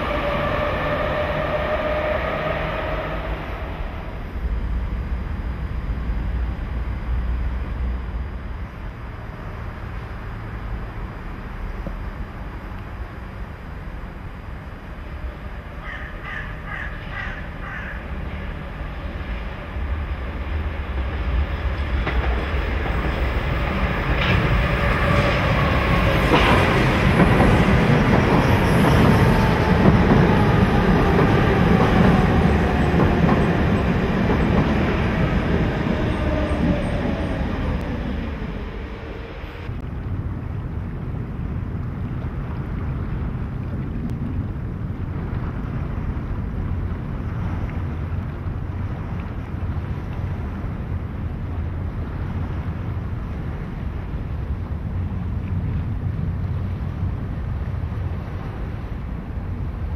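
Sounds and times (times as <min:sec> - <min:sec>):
train pulling into station: 0:00.0 - 0:39.8.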